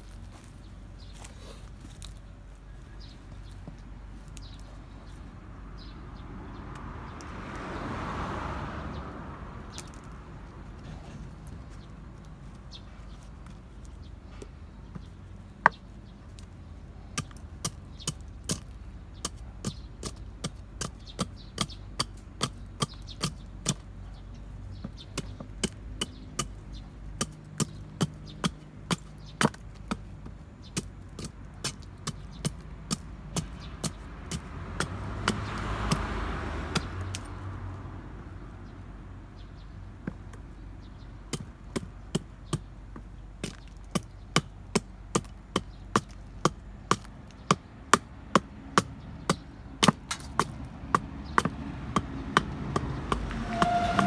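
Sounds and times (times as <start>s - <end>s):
hatchet chopping wood: 17.1s - 24.0s, 24.8s - 37.4s, 41.3s - 54.0s.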